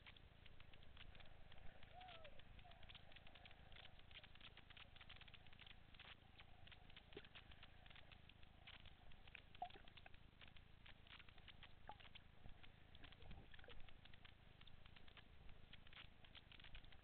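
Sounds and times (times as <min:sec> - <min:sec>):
underwater crackle of clicks: 0:00.0 - 0:17.0.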